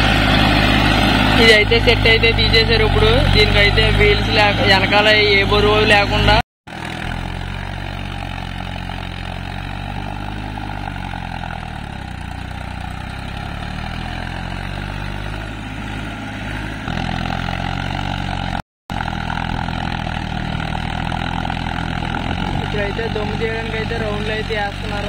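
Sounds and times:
tractor diesel engine under load: 0.0s - 25.0s.

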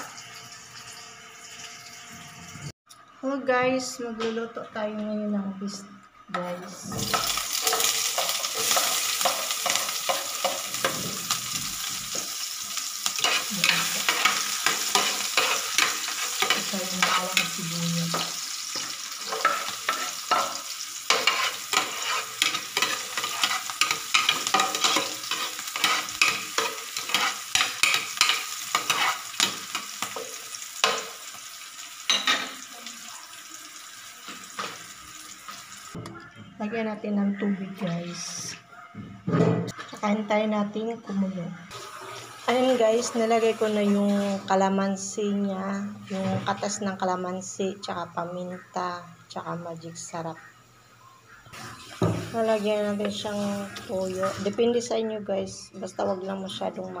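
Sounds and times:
beef sizzling in oil: 6.9s - 36.0s, 41.7s - 44.6s, 51.5s - 54.6s
spoon scraping pan: 7.1s - 12.4s, 13.0s - 31.2s.

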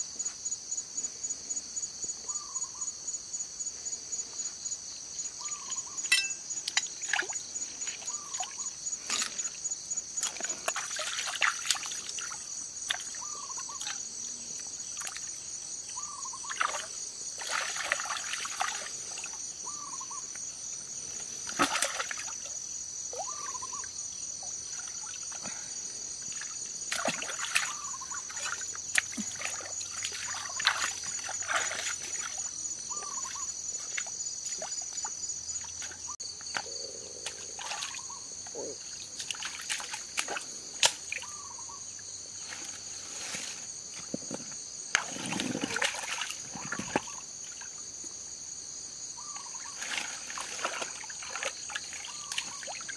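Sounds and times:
water splashing and trickling: 5.4s - 19.8s, 21.1s - 23.8s, 24.4s - 36.5s, 37.2s - 38.2s, 38.8s - 41.5s, 42.4s - 47.8s, 49.2s - 52.9s.

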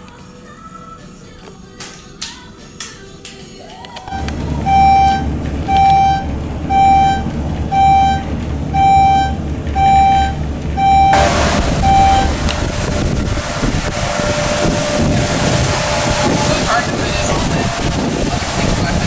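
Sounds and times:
outdoor street noise: 0.0s - 19.0s
elevator humming: 4.0s - 19.0s
short electronic beeps: 4.1s - 12.3s
wind on microphone: 11.2s - 19.0s.

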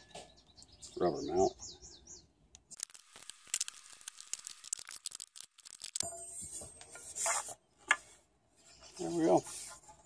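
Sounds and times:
scraping and rubbing of wood: 6.3s - 10.0s.

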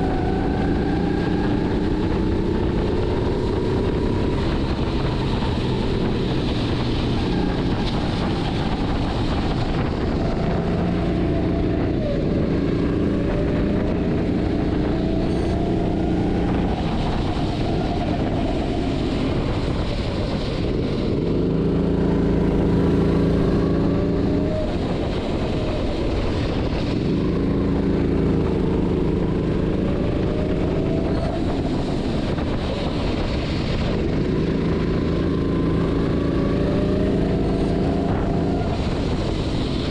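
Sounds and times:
go-kart engine revving: 0.0s - 39.9s
wind on microphone: 0.0s - 39.9s.

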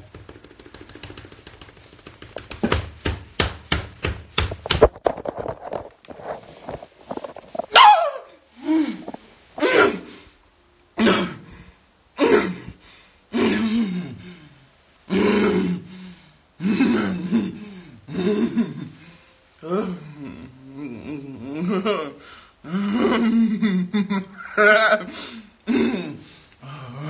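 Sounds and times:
rapid sharp knocks: 0.0s - 5.0s
falling cry: 7.7s - 10.2s
person grunting: 8.6s - 10.2s, 12.2s - 14.5s, 15.1s - 19.0s, 19.6s - 23.8s, 24.5s - 27.0s.

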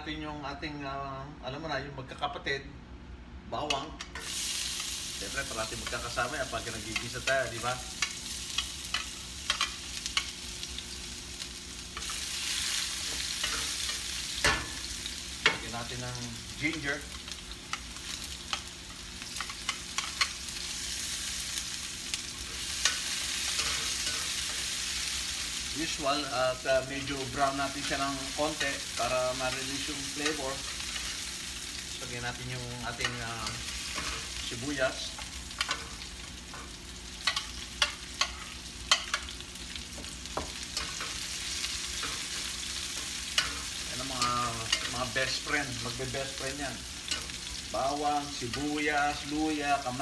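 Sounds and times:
garlic sizzling in oil: 4.2s - 50.0s
metal tongs clicking against pan: 8.0s - 10.3s, 37.2s - 39.4s.

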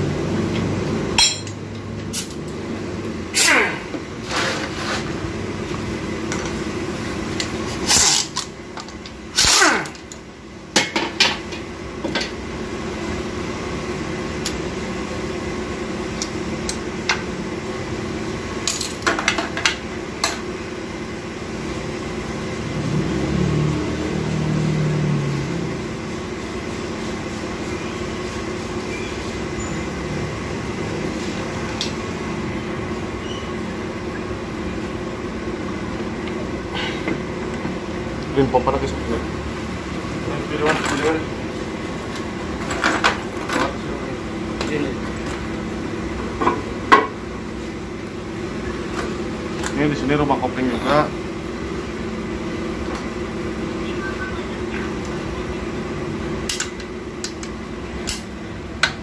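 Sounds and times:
steady background hum: 0.0s - 23.0s, 25.2s - 59.0s
metal tools clicking and clanking: 1.2s - 2.4s.

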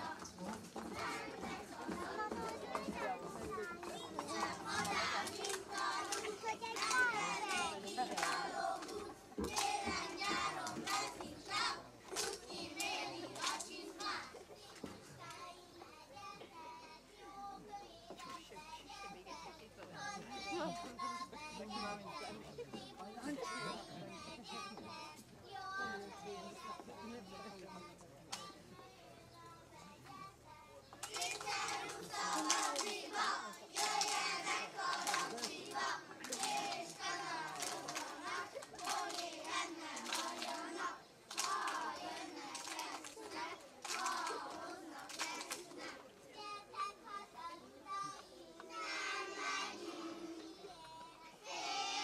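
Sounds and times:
children singing together: 0.0s - 22.8s, 31.0s - 52.0s
hand claps: 0.1s - 14.9s, 30.9s - 45.9s.

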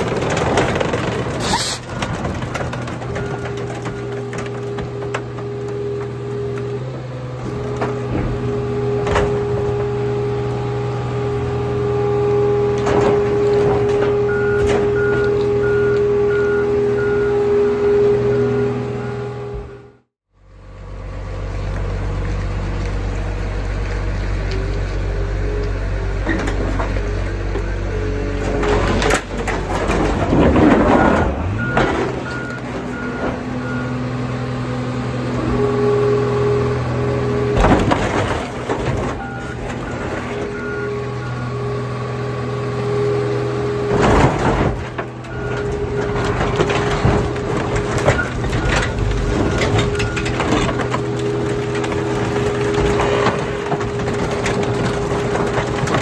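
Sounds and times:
diesel engine running: 0.0s - 56.0s
reversing alarm beeping: 14.2s - 19.9s
sheet metal and glass crunching: 43.9s - 56.0s.

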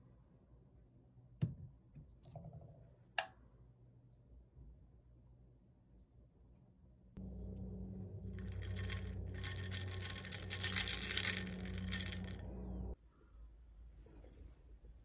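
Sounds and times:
steady low hum: 7.2s - 13.0s
ice crackling: 7.4s - 13.0s
coffee foam fizzing: 8.2s - 13.0s.

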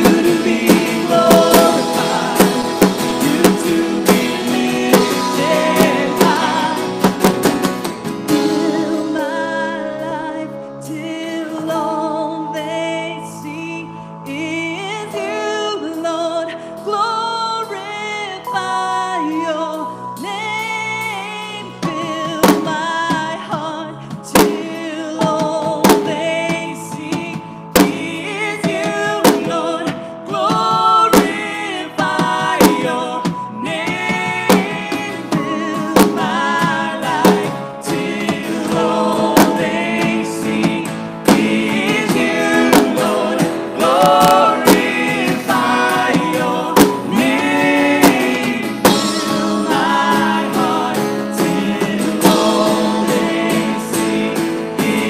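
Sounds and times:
woman singing: 0.0s - 7.3s, 8.3s - 55.0s
drum hits: 0.0s - 8.8s, 34.0s - 55.0s
acoustic guitar: 0.0s - 55.0s
keyboard playing: 0.0s - 55.0s.

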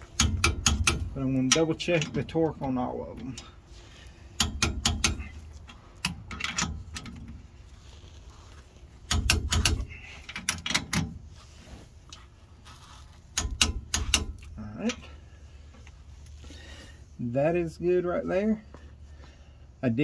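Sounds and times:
torque wrench metallic clicks: 0.0s - 2.3s, 4.4s - 7.3s, 9.1s - 11.1s, 13.3s - 15.0s.

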